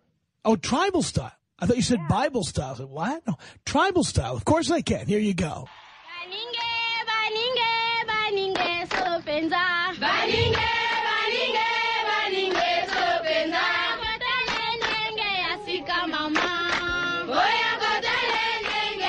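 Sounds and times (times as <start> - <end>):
high voice singing chant: 9.8 - 19.0.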